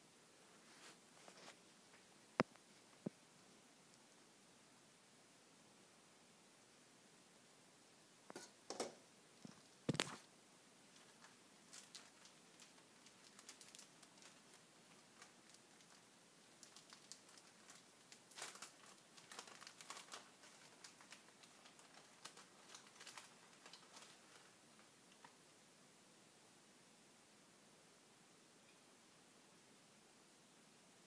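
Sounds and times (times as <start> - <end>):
faint light clicks and crackles: 10.9 - 25.4.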